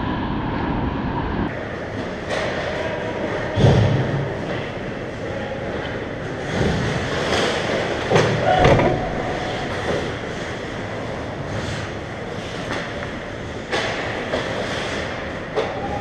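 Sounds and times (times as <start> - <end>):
skates scraping ice: 4.4 - 16.0.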